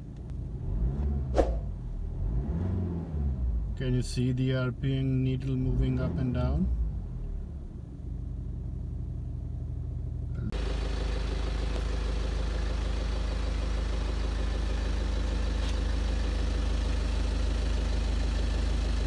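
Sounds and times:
diesel engine idling: 6.8 - 19.0.

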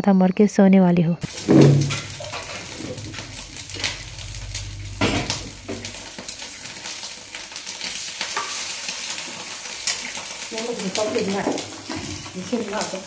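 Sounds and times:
food sizzling in a pan: 1.2 - 13.0
utensil scraping a pan: 1.3 - 7.0, 8.2 - 12.7.

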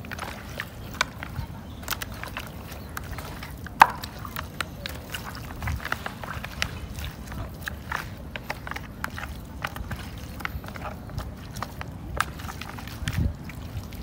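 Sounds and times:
meat sloshing in water: 0.0 - 14.0.

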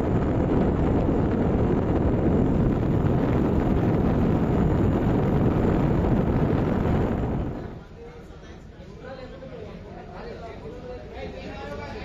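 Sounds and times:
wind rumble on microphone: 0.0 - 7.9.

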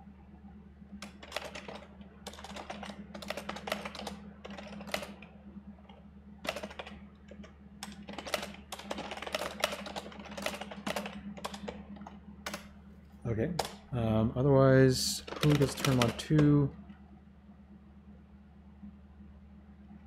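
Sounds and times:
steady low hum: 0.0 - 20.0
fast keyboard typing: 1.0 - 12.7, 13.6 - 13.8, 15.1 - 16.6.

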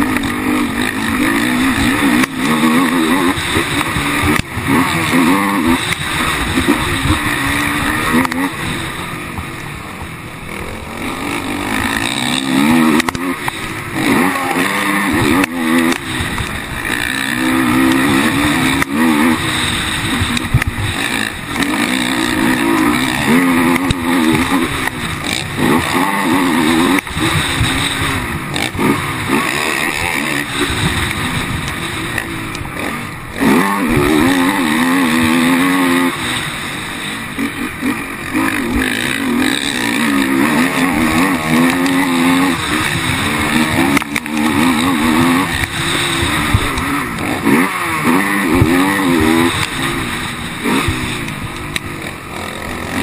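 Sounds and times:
quad engine revving: 0.0 - 53.0.

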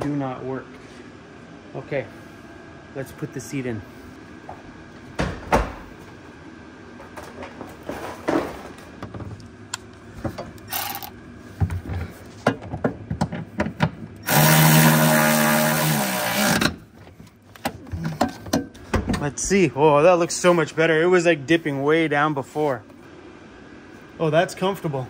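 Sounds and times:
power ratchet motor whine: 10.7 - 11.2, 14.2 - 16.8.

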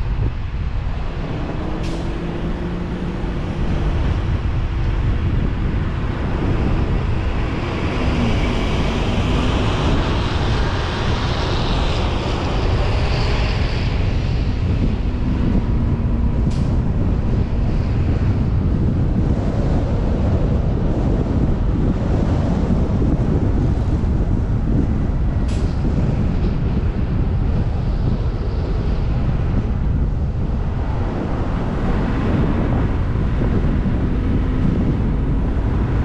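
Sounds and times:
road and wind noise: 0.0 - 36.0.

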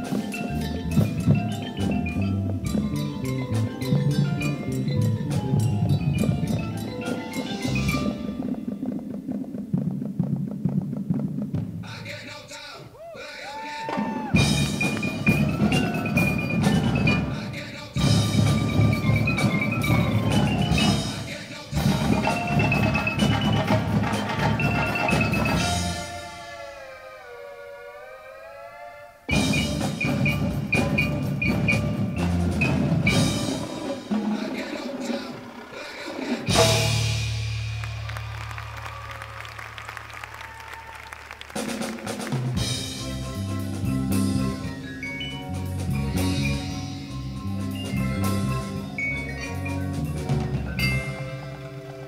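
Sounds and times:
marimba melody: 0.0 - 9.4, 14.3 - 26.7, 29.2 - 38.0, 41.6 - 52.0
bass drums: 0.0 - 12.2, 14.2 - 17.4, 18.0 - 26.1, 29.3 - 33.6, 36.5 - 39.8, 41.6 - 51.7
snare drums: 0.0 - 26.9, 29.3 - 52.0
tenor drums: 0.0 - 28.0, 29.2 - 52.0
fast cymbal and drum strokes: 29.3 - 38.2
cymbal crash and bass drum: 36.5 - 38.5.

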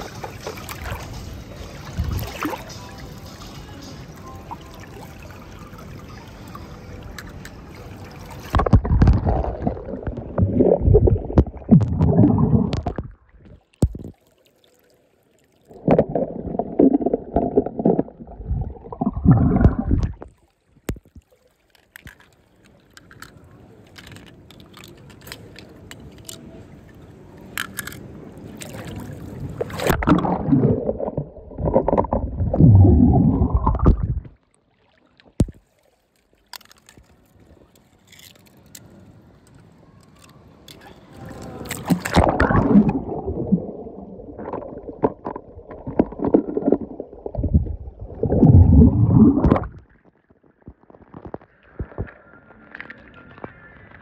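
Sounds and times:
water gurgling and splashing: 0.0 - 1.3, 1.9 - 2.7, 7.9 - 14.8, 15.4 - 22.3, 27.8 - 37.2, 41.2 - 52.0
faint water trickle: 0.0 - 8.6, 12.4 - 16.6, 18.2 - 29.8.

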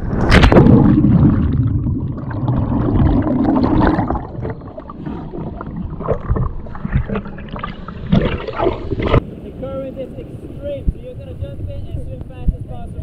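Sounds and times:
loud splash into water: 0.0 - 9.2.

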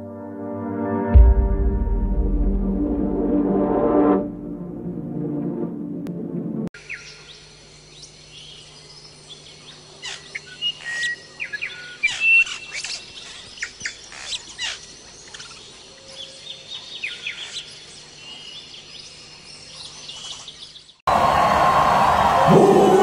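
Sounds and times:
birds chirping and whistling: 10.1 - 15.6.

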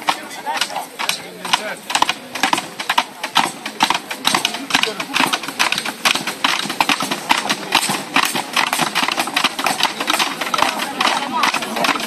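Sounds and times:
rapid clatter of sharp knocks: 0.0 - 12.0.

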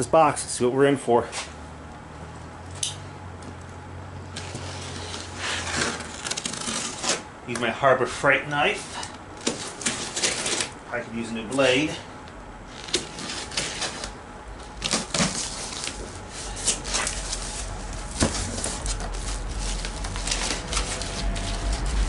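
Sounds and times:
paper rustling: 12.7 - 22.0.

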